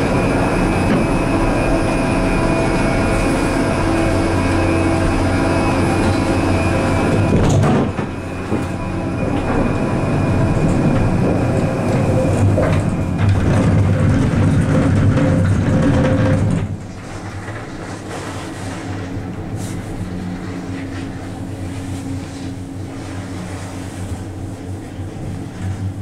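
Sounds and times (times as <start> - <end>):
gondola wheels clunking: 0.0 - 19.5
gondola cabin rumbling: 0.0 - 26.0.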